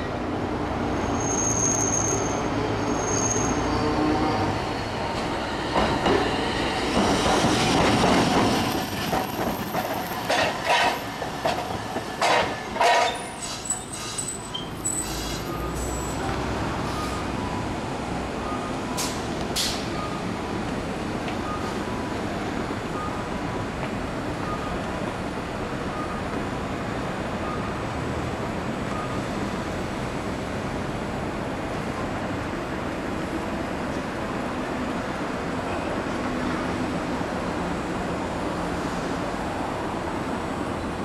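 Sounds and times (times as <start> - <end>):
tram rumbling: 0.0 - 41.0
high wheel squeals: 0.9 - 5.5, 8.5 - 17.3
tram wheels clicking over rail joints: 5.1 - 13.9.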